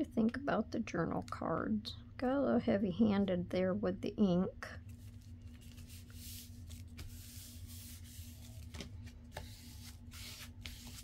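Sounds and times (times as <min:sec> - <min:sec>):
hands rubbing paper: 0:04.9 - 0:11.0.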